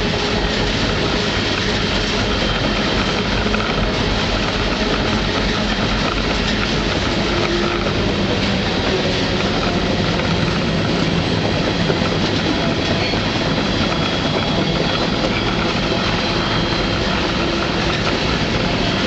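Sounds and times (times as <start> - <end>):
freight train wheels rumbling: 0.0 - 19.0.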